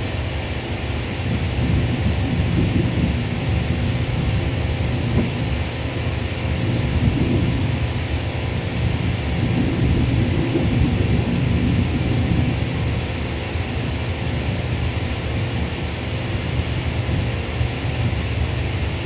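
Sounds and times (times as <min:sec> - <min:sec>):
distant jet engines rumbling: 0:00.0 - 0:19.0.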